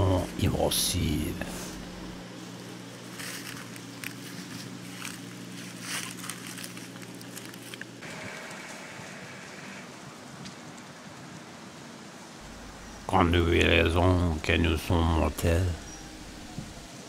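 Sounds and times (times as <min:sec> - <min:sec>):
low steady hum: 0:00.0 - 0:10.4, 0:12.3 - 0:17.0
crackling and rustling: 0:01.7 - 0:14.9
faint high steady tone: 0:12.4 - 0:16.9.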